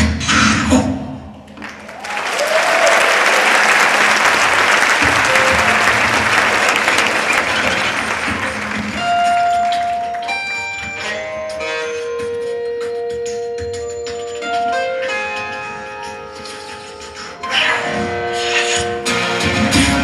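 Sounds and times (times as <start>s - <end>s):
audience applauding: 1.5s - 10.5s.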